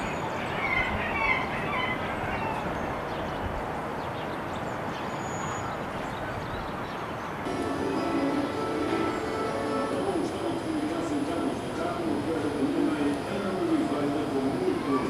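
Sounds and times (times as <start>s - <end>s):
faint high bird calls: 0.0s - 7.4s
city background noise: 0.0s - 15.0s
music with held notes: 7.5s - 10.5s.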